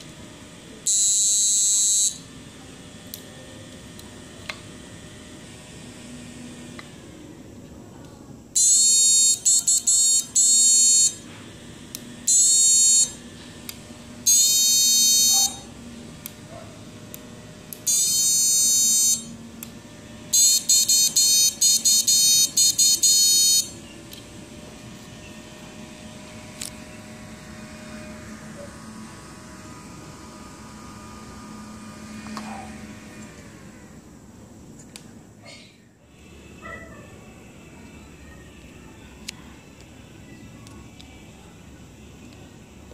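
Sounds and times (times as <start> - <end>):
high-pitched buzzer tone: 0.8 - 2.4, 8.6 - 11.3, 12.2 - 13.3, 14.2 - 15.8, 17.8 - 19.4, 20.3 - 23.9.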